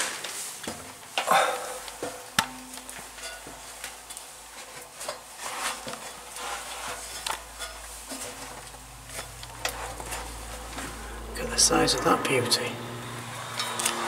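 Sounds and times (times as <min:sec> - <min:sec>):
metal clinks on ladder rungs: 0:01.9 - 0:11.0.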